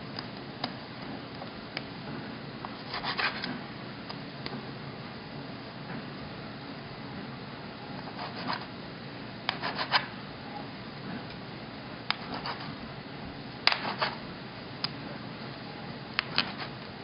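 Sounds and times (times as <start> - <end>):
scraper chopping through dough: 2.8 - 3.6, 9.5 - 10.1, 12.1 - 12.8, 13.7 - 14.2, 16.2 - 16.8.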